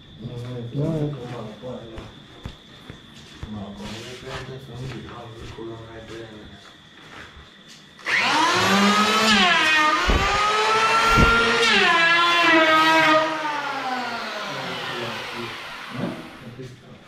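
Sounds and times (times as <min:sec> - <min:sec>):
electric hand planer running: 0:08.0 - 0:16.4
dull knocks: 0:10.0 - 0:11.5.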